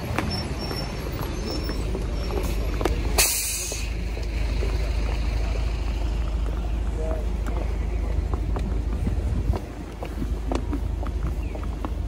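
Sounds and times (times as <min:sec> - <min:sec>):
road traffic rumble: 0:00.0 - 0:12.0
bus air brake hiss: 0:03.2 - 0:04.0.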